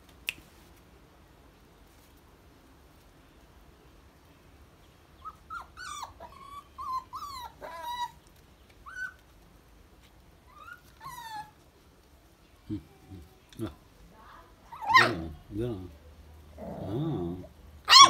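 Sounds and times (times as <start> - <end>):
puppies whimpering: 5.2 - 8.2, 10.5 - 11.6.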